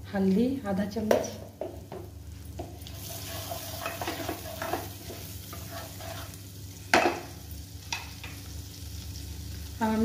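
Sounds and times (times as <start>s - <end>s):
spices sizzling in hot oil: 0.2s - 10.0s
spoon scraping pan: 2.8s - 6.4s.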